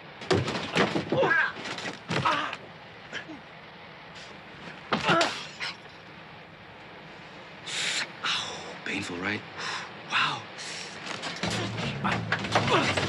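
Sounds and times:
fighting thumps: 11.2 - 13.0
men grunting and groaning: 11.5 - 13.0.

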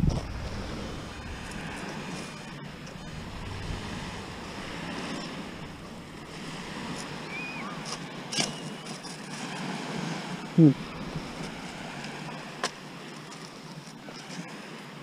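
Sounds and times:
wind buffeting microphone: 0.0 - 8.3, 9.4 - 13.0
surf: 0.0 - 15.0
wind: 0.0 - 15.0.

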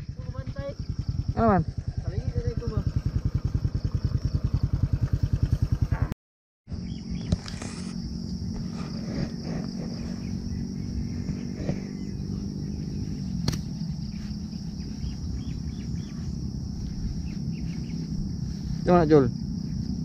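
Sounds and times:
insects chirring: 0.0 - 6.1, 6.7 - 20.0
wind rumble on microphone: 6.8 - 20.0
sharp click: 13.4 - 13.7.

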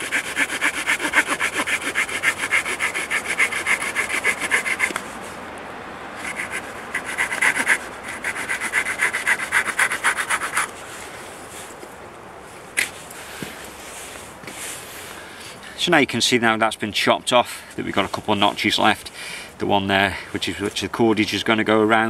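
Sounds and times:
saw cutting wooden stick: 0.0 - 5.0, 6.2 - 10.8.

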